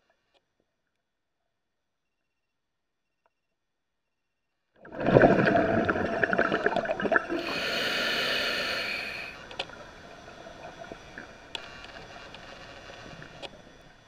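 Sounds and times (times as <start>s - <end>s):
exhaled bubbles gurgling: 4.8s - 11.5s
regulator inhale hiss: 7.2s - 14.0s.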